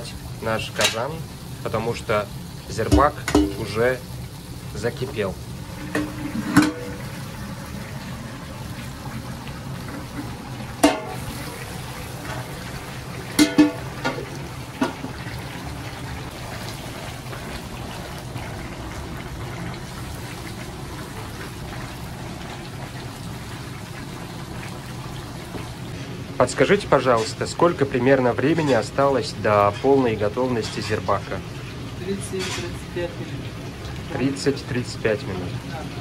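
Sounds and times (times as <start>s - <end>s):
broth bubbling: 5.4s - 26.0s.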